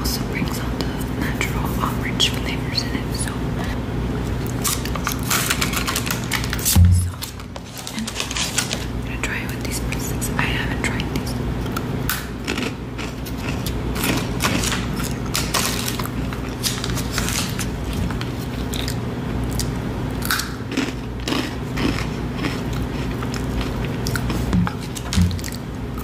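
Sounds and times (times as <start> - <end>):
steady low hum: 0.0 - 26.0
crunchy snack chewing: 4.4 - 8.9, 11.6 - 26.0.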